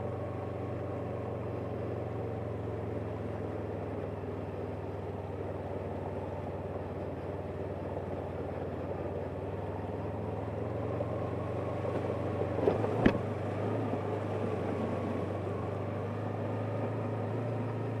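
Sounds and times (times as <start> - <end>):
motorcycle engine running: 0.0 - 18.0.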